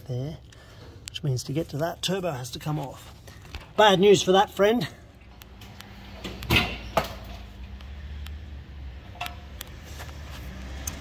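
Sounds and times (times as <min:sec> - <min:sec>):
sharp clicks and knocks: 0:05.2 - 0:08.4, 0:09.1 - 0:11.0.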